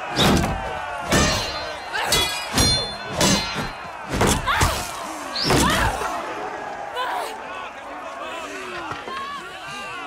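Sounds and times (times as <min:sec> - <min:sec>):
weapons clashing with metallic ring: 0:01.1 - 0:04.0.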